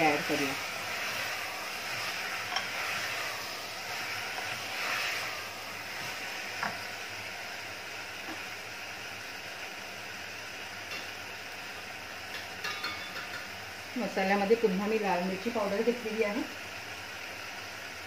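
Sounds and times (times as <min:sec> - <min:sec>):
wooden spoon stirring: 0:00.0 - 0:06.8
food sizzling in a pot: 0:00.0 - 0:18.0
spoon knocking against pot: 0:12.3 - 0:13.5.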